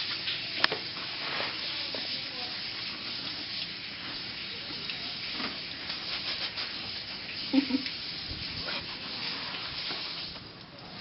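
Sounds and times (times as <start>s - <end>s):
knife rasping fruit rind: 5.9s - 6.8s.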